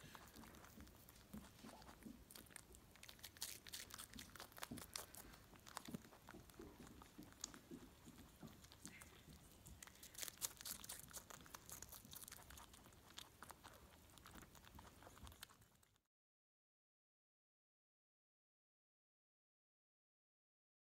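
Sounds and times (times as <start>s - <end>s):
rabbit chewing: 0.0s - 16.1s.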